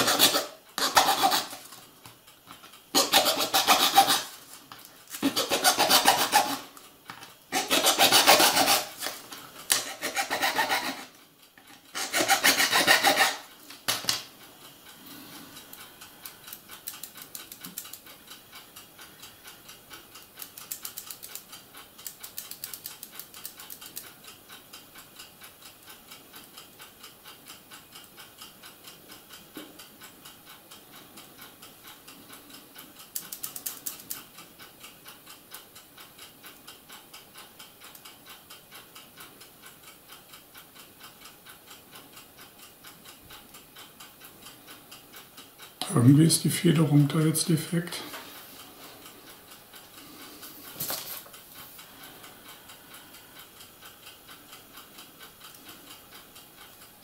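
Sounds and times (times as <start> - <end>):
hobby knife scraping plastic: 0.0 - 1.7, 3.0 - 4.3, 5.1 - 6.6, 7.5 - 11.1, 11.9 - 13.5
faint regular ticking: 0.2 - 3.0, 8.8 - 57.0.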